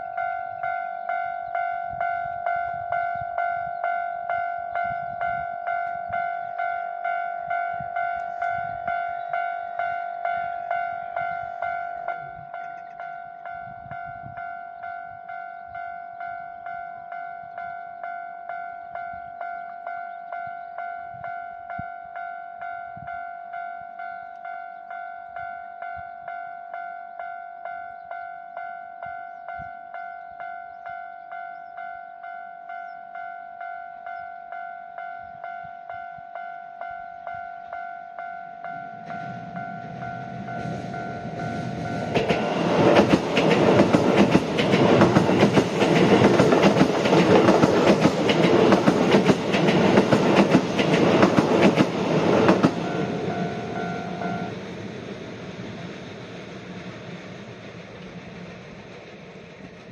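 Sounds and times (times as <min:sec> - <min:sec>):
level crossing warning bell: 0:00.0 - 0:54.6
train wheels clattering over rails: 0:39.2 - 0:59.9.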